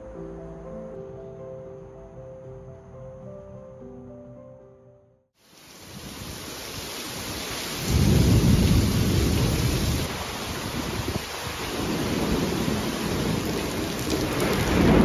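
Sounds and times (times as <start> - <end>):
heavy rain pouring: 5.4 - 15.0
thunder rumbling: 7.3 - 15.0.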